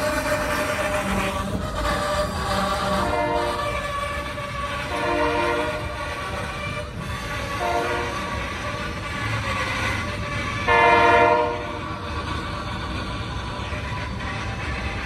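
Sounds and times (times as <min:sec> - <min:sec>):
freight cars rumbling on rails: 0:00.0 - 0:15.0
locomotive air horn: 0:00.1 - 0:09.4, 0:10.0 - 0:12.0.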